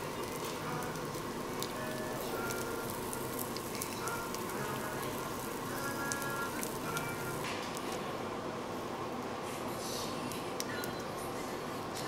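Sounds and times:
soft background music: 0:00.0 - 0:07.5
food sizzling on grill: 0:00.0 - 0:08.0.

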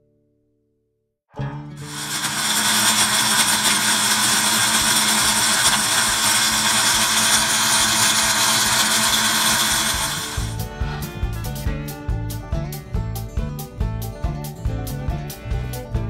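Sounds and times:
blender grinding dry food: 0:01.8 - 0:10.6.

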